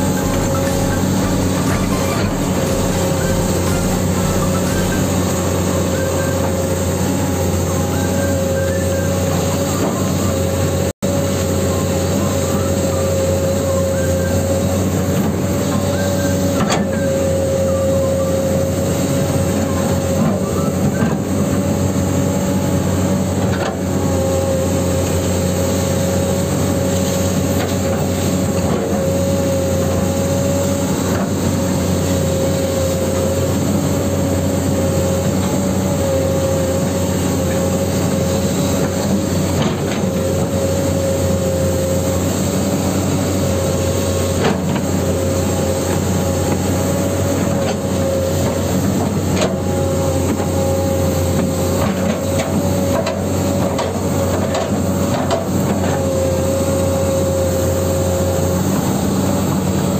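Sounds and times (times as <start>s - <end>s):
toy excavator mechanical drone: 0.0s - 10.6s.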